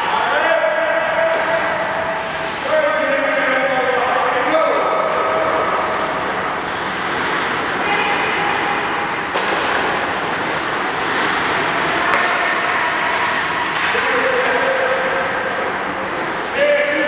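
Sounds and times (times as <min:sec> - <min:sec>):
ice rink noise: 0:00.0 - 0:17.0
puck being hit: 0:09.0 - 0:12.7.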